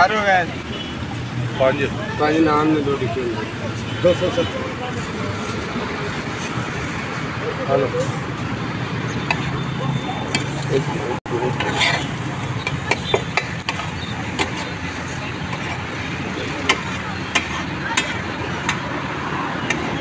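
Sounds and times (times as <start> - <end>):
street traffic hum: 0.0 - 20.0
metal spatula clacking on iron griddle: 11.5 - 12.0, 12.6 - 14.7, 16.6 - 18.8.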